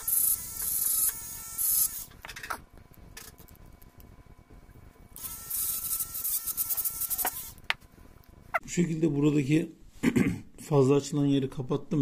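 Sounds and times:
rotary tool motor whine: 0.0s - 2.5s, 5.1s - 7.7s.

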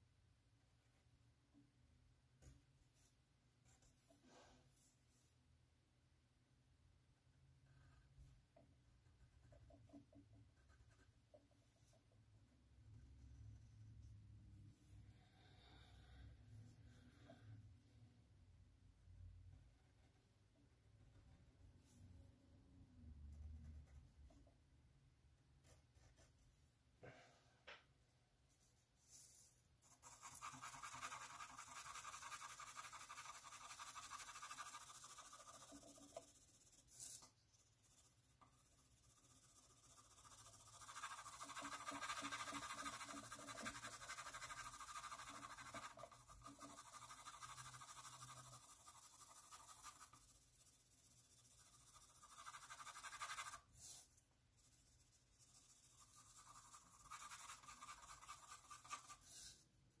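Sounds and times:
pencil scratching on paper: 9.0s - 12.0s, 25.6s - 26.5s, 29.1s - 59.6s.

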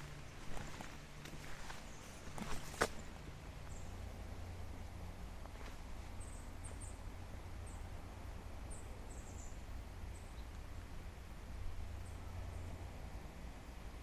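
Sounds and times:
forest ambience rumble and hiss: 0.0s - 14.0s
small bird chirping: 6.1s - 7.9s, 8.7s - 10.6s.

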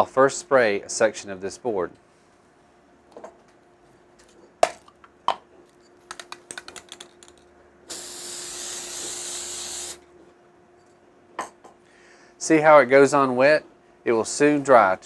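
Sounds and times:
aerosol can spraying hiss: 7.9s - 10.0s.

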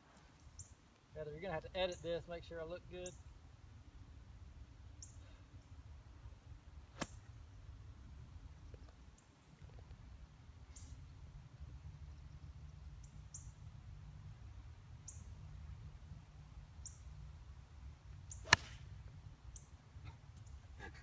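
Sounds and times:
low steady rumble: 0.5s - 21.0s
golf club striking ball: 6.9s - 7.3s, 18.4s - 18.9s.

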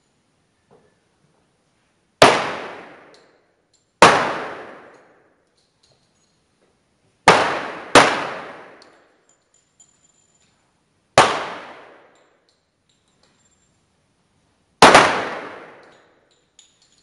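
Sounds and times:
pistol shots: 2.2s - 3.2s, 4.0s - 5.2s, 7.2s - 9.0s, 11.2s - 12.2s, 14.8s - 16.1s.

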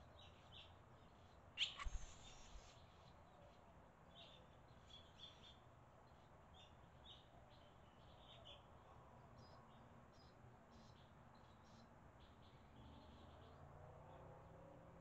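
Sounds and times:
swallows chirping: 1.6s - 3.1s.

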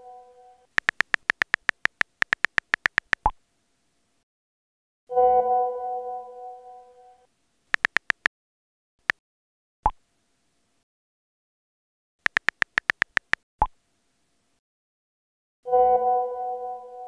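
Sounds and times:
phone keyboard clicks: 0.7s - 3.4s, 7.7s - 8.3s, 12.2s - 13.4s
message sent pop: 0.8s - 3.3s, 7.8s - 8.3s, 12.3s - 13.4s.

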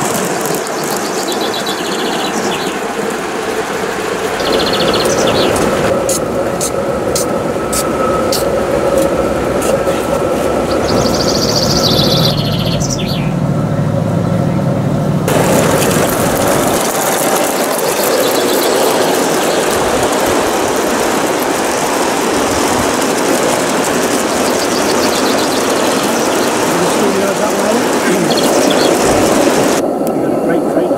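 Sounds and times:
steam locomotive hissing: 0.0s - 13.8s, 15.3s - 30.9s
birds chirping: 0.0s - 30.9s
low hum: 0.0s - 30.9s.

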